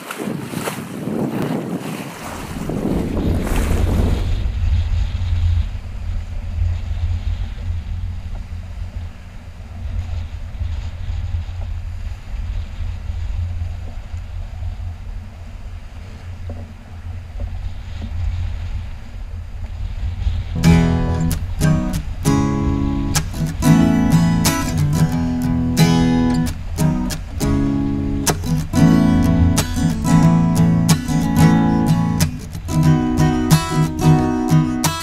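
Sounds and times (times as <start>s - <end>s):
rush of water from waves: 0.0s - 35.0s
wind buffeting microphone: 0.0s - 35.0s
acoustic guitar music: 20.6s - 35.0s.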